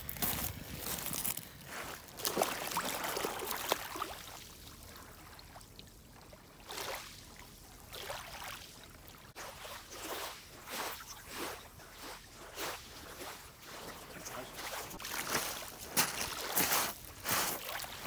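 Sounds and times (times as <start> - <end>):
footsteps crunching on shingle: 0.0 - 2.2, 14.9 - 17.7.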